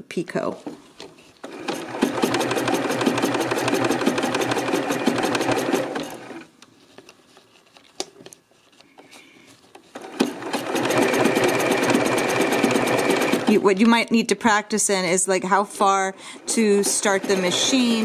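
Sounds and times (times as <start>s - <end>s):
sewing machine stitching: 1.4s - 6.5s, 9.9s - 13.7s, 16.5s - 18.0s.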